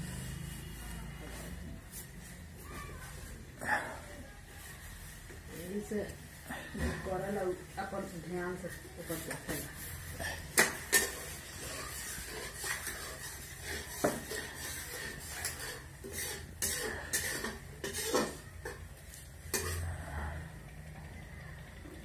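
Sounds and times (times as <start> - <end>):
utensils and dishes clinking: 9.2 - 20.0.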